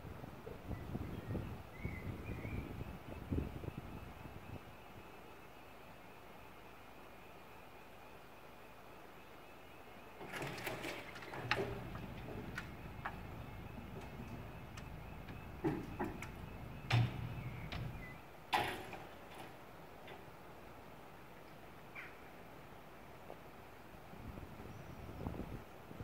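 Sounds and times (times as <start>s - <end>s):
barrier motor hum: 10.2s - 19.6s
barriers clicking and clanking: 10.2s - 20.6s
barrier knocking on road: 11.6s - 19.2s.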